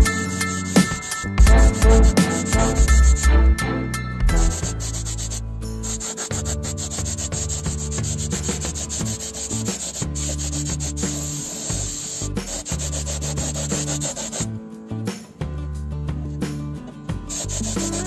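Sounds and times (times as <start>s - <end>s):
sanding scratchy clicks: 0.1s - 3.3s, 4.3s - 14.5s, 17.3s - 18.0s.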